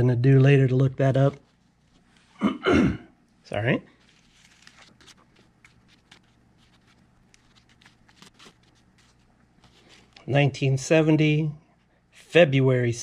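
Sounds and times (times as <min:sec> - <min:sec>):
banknotes rustling: 0:03.9 - 0:10.3.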